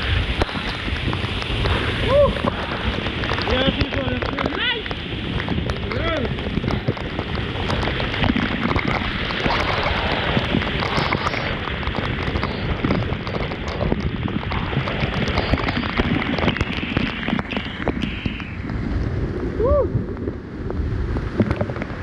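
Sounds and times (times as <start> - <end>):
waterfall rushing and splashing: 0.0 - 19.1.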